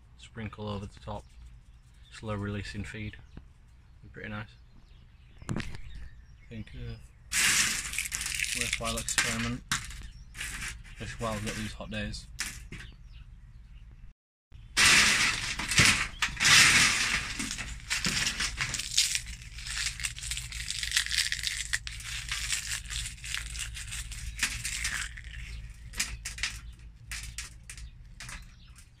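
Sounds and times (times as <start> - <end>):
dry banana skins crackling: 7.3 - 11.7, 14.8 - 29.0.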